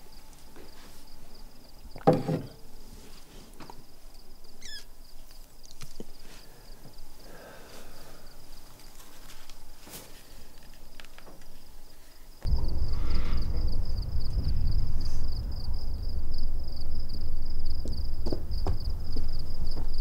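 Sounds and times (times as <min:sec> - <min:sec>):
cricket trill: 0:03.7 - 0:20.0
sharp knock: 0:12.5 - 0:20.0.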